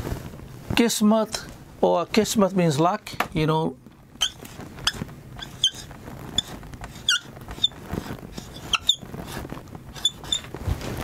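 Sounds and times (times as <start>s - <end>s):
marker squeaking on whiteboard: 4.2s - 10.5s.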